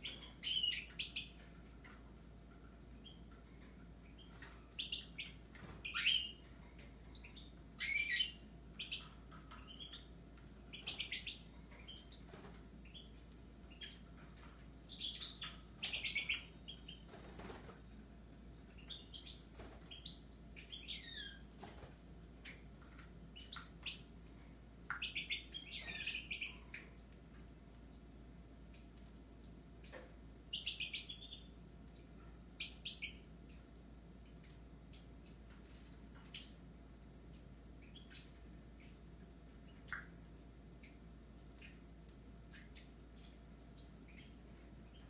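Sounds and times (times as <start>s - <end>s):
birds chirping and singing: 0.0s - 2.0s, 4.1s - 6.5s, 7.1s - 22.6s, 24.9s - 26.9s.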